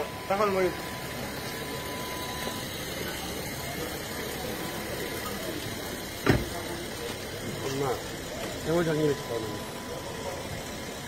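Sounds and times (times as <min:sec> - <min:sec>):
outdoor background noise: 0:00.0 - 0:11.0
sharp loud thump: 0:06.2 - 0:06.5.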